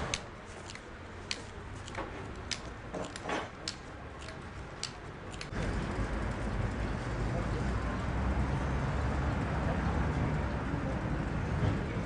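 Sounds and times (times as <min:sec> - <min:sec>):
sharp clicks and light taps: 0:00.1 - 0:05.5.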